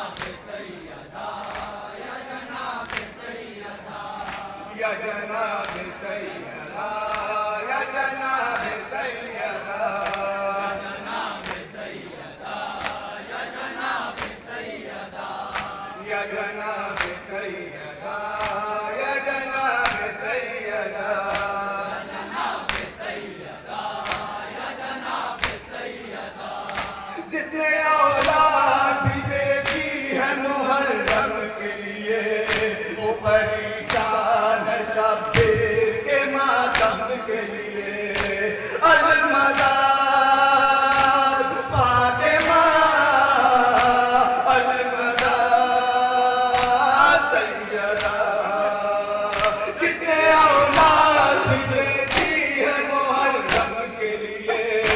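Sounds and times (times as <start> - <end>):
men chanting a lament in chorus: 0.0 - 54.9.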